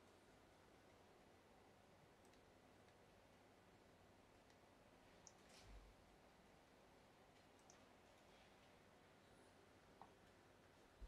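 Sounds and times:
soft clicks: 2.2s - 3.0s, 4.4s - 5.6s, 7.3s - 7.9s.

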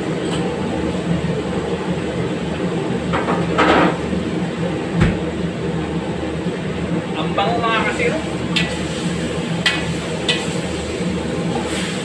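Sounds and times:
gas wok burner roaring: 0.0s - 12.0s
chicken sizzling in a wok: 7.8s - 12.0s.

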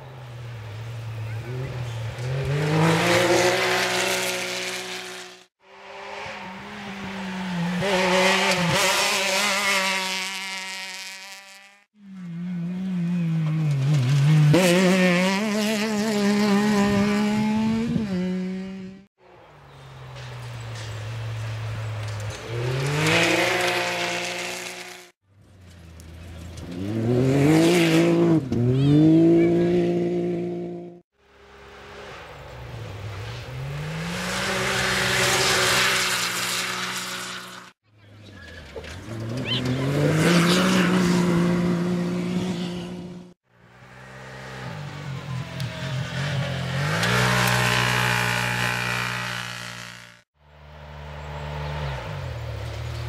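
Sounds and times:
buggy engines revving: 0.0s - 53.0s.

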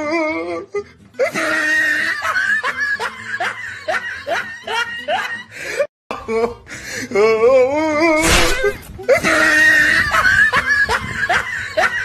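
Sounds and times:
person laughing: 1.2s - 6.6s, 8.6s - 12.0s.

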